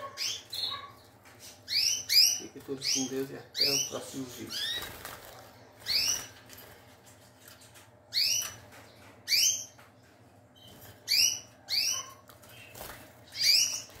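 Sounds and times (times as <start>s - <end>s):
canary chirps: 0.0s - 14.0s.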